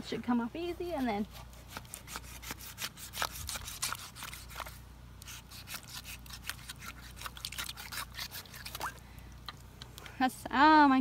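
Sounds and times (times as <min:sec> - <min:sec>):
knife cutting through fish: 0:01.5 - 0:09.0.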